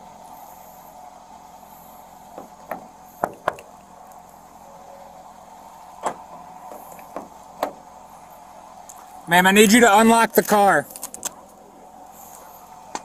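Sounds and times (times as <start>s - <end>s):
steady hum: 0.0s - 13.0s
car door mechanism clicks: 6.0s - 7.8s.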